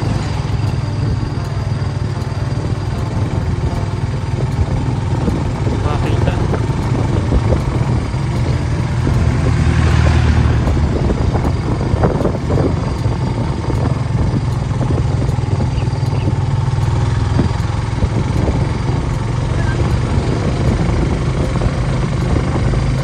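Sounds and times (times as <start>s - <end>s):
vehicle engine drone and road noise: 0.0s - 23.0s
vehicle passing: 0.0s - 23.0s.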